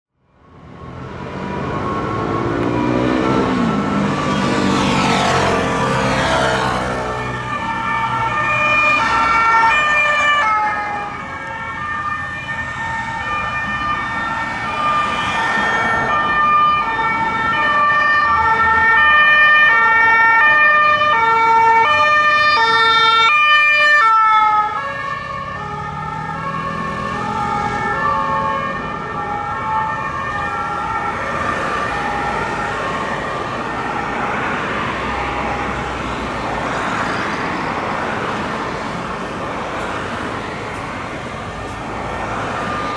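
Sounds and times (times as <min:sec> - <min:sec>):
road traffic: 0:00.1 - 0:42.9
two-tone emergency siren: 0:00.2 - 0:42.9
passing vehicle rumble: 0:00.4 - 0:42.9.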